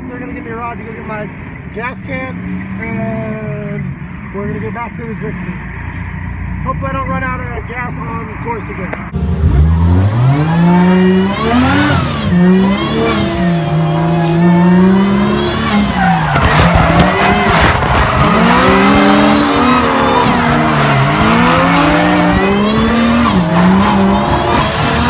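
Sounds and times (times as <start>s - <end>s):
car engine revving: 9.0s - 25.0s
tyres squealing and skidding: 9.6s - 25.0s.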